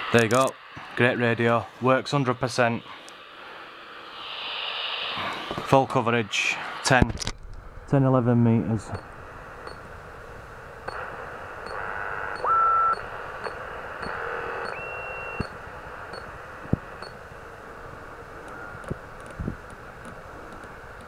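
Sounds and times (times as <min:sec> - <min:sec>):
radio receiver hiss: 0:00.0 - 0:21.0
brief radio tones: 0:14.0 - 0:15.5.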